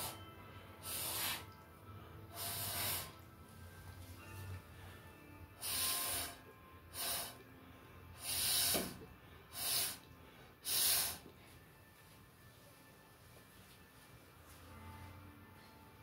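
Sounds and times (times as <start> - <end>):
short puffs of breath: 2.3 - 3.2.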